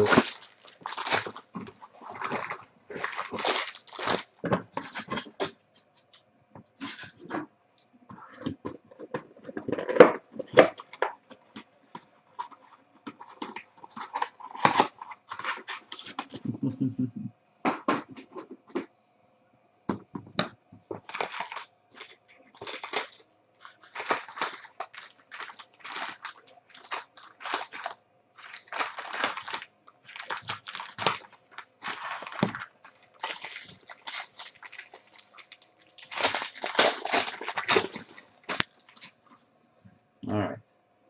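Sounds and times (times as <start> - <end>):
foil wrappers crinkling and tearing: 0.0 - 5.6, 13.2 - 16.4, 21.0 - 39.2.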